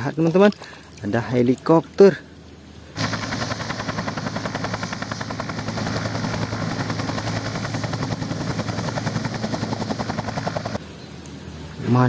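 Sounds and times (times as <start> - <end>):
low hum: 2.4 - 11.8
helicopter rotor blade slap: 3.0 - 10.8.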